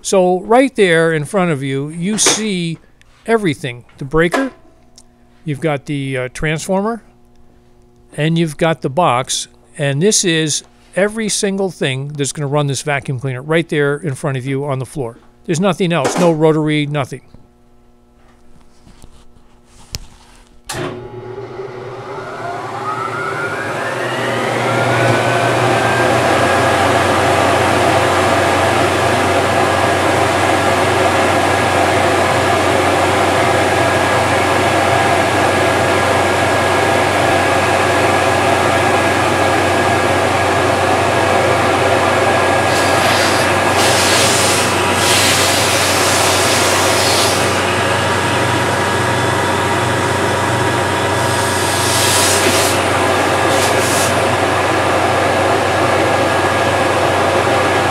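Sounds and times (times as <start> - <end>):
industrial vacuum motor whine: 20.6 - 57.9.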